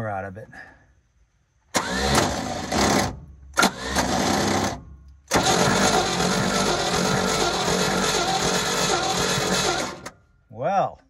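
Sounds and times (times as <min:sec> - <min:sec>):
starter cranking truck engine: 0:01.7 - 0:10.2.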